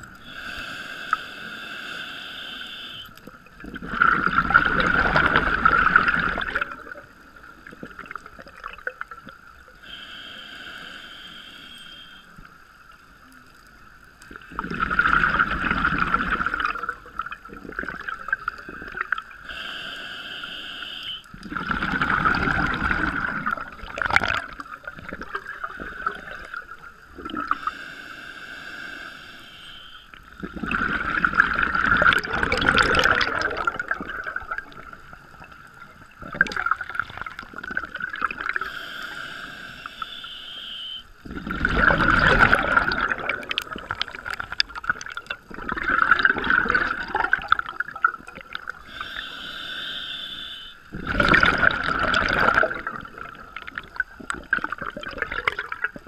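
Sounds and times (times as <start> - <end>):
regulator inhale hissing: 0.1 - 3.2, 9.8 - 12.4, 18.7 - 21.4, 27.5 - 30.4, 38.4 - 41.3, 48.6 - 50.9
exhaled bubbles rushing underwater: 2.9 - 9.8, 13.5 - 19.4, 21.3 - 27.8, 30.1 - 38.7, 41.2 - 49.0, 50.8 - 56.0.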